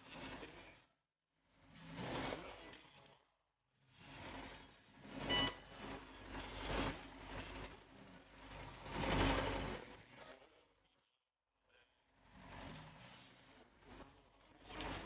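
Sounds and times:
old tractor engine running: 4.0 - 10.2.

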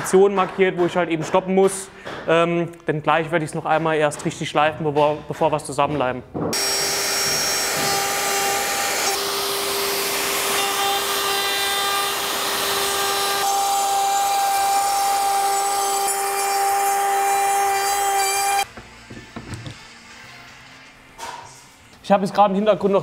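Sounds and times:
router motor whine: 6.6 - 18.6
router bit cutting wood: 6.6 - 18.7.

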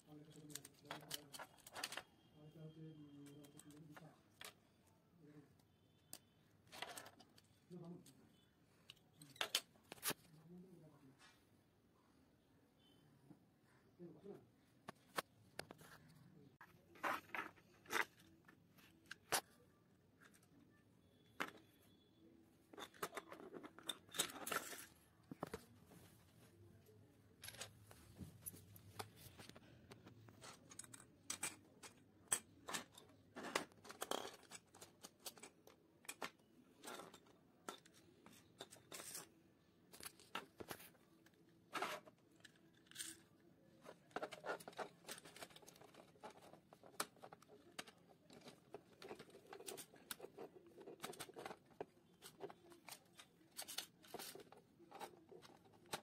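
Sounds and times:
small plastic parts clicking: 30.0 - 39.3.

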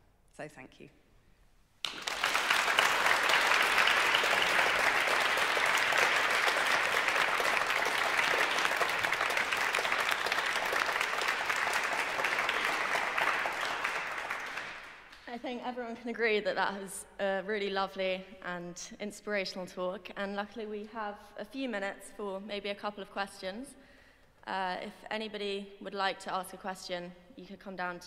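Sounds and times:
audience clapping: 1.8 - 15.4.

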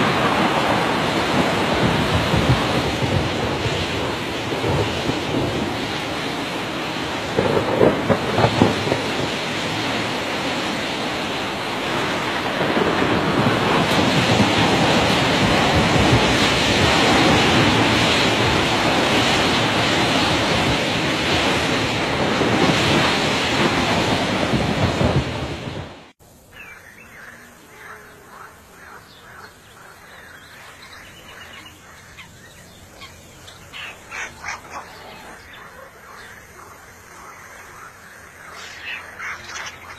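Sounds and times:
faint short calls: 30.7 - 39.9.

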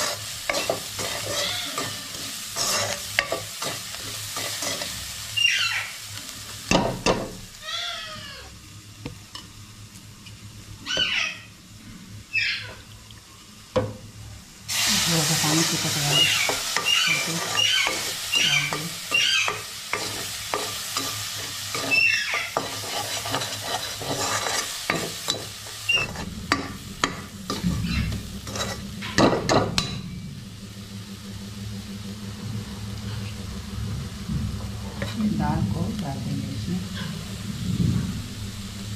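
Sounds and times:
spoon scraping a metal pan: 0.0 - 5.0, 16.1 - 30.0
onions sizzling in oil: 0.0 - 38.9
low hum: 25.2 - 38.9.

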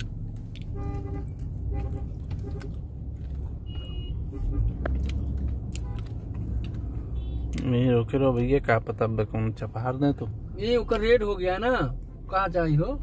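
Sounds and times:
road traffic rumble: 0.0 - 13.0
short beeps: 3.6 - 4.2.

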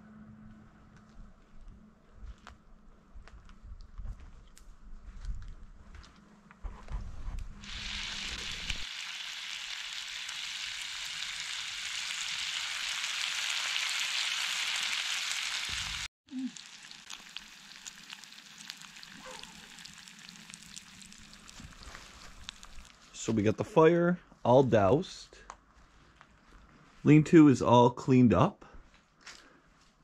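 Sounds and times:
grease sizzling in pan: 7.6 - 23.0.

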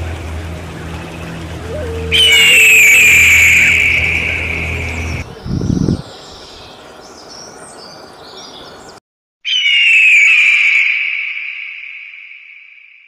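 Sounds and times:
small birds chirping: 0.8 - 10.4
raptor screaming: 1.7 - 5.2.

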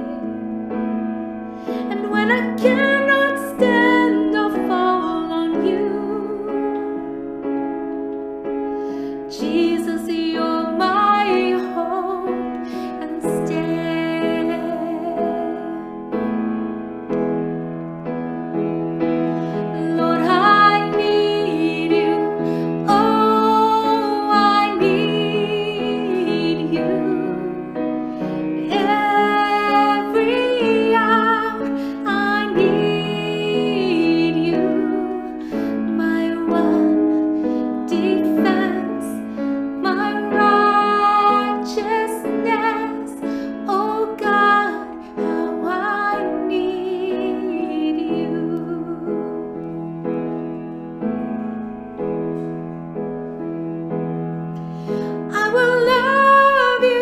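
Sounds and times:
piano accompaniment: 0.0 - 57.0
woman singing worship song: 1.9 - 7.0, 9.3 - 15.8, 19.7 - 27.8, 28.4 - 49.5, 55.2 - 57.0.

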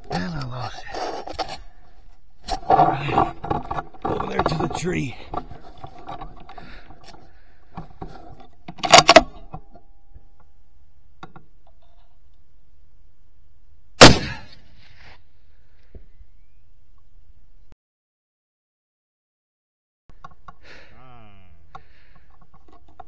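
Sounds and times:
rifle shot: 14.0 - 14.9
loud cracks: 14.0 - 15.0.

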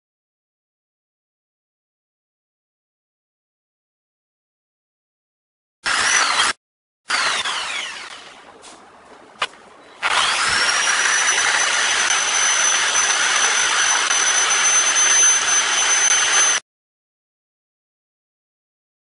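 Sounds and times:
electric drill running: 5.8 - 8.4, 10.0 - 16.6.

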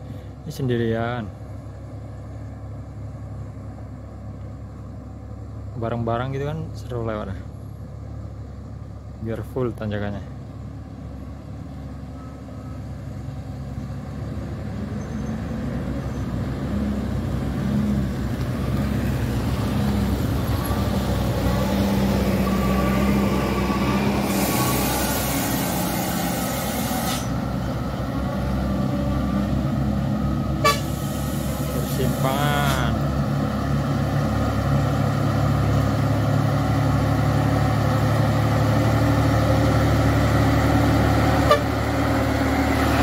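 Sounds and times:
truck diesel engines labouring: 0.0 - 43.0
hiss: 24.2 - 27.4, 30.8 - 32.2
horn toot: 30.6 - 31.1, 41.4 - 41.7.

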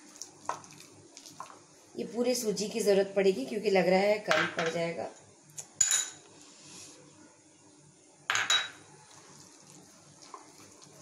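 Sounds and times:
ceramic bowls clinking: 8.3 - 8.8.

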